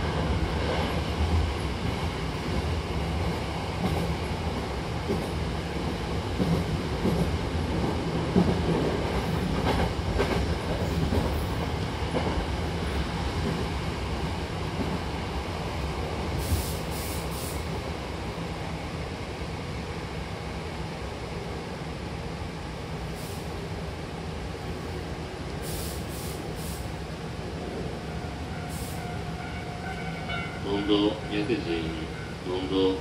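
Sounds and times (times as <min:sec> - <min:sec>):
train running gear rumble: 0:00.0 - 0:33.0
brief high hisses: 0:16.4 - 0:17.6, 0:25.6 - 0:26.9, 0:28.7 - 0:29.1.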